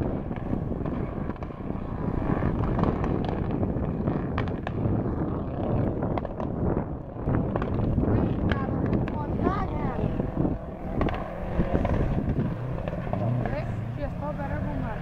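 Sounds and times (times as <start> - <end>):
wind rumbling on microphone: 0.0 - 15.0
distant car engine revving hard: 7.5 - 15.0.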